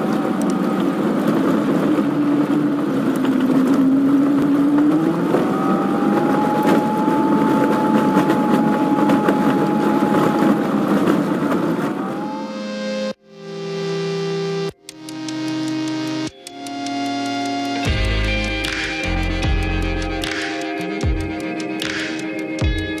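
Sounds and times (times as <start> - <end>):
tyre noise on rough road: 0.0 - 12.5.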